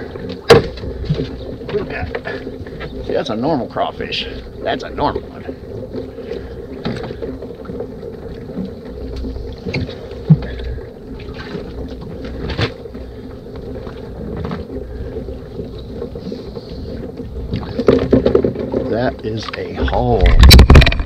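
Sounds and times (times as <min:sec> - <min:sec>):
boat motor idling: 0:00.0 - 0:21.0
knocks and clatter on deck: 0:00.2 - 0:02.9, 0:17.5 - 0:21.0.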